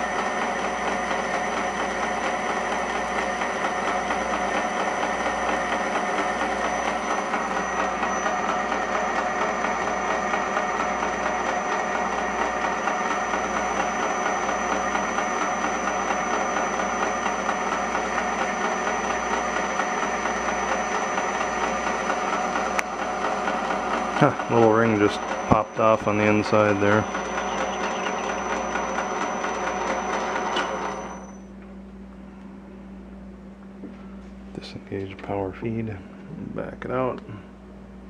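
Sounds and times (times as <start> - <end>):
high whine: 0.0 - 10.2, 23.8 - 37.7
metal lathe motor drone: 0.0 - 31.5.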